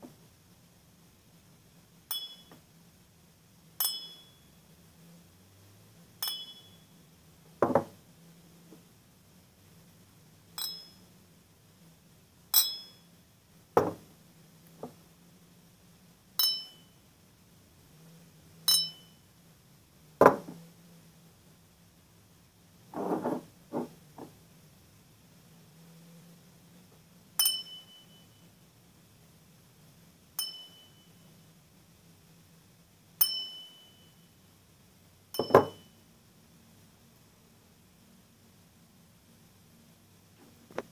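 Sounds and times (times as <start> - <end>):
crystal glasses clinking: 2.1 - 2.6, 3.8 - 4.4, 6.2 - 6.9, 10.6 - 11.1, 12.5 - 13.1, 16.4 - 16.9, 18.7 - 19.2, 27.4 - 28.4, 30.4 - 31.1, 33.2 - 34.2, 35.4 - 35.9
dull glass knocks: 7.6 - 7.9, 13.8 - 14.0, 35.4 - 35.8.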